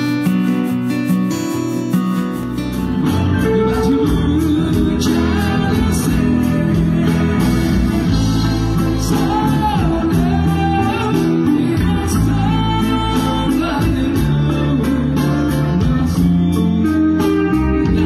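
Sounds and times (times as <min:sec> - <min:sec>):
guitars: 0:00.0 - 0:18.0
steady drum beat: 0:00.0 - 0:18.0
person singing: 0:03.4 - 0:18.0.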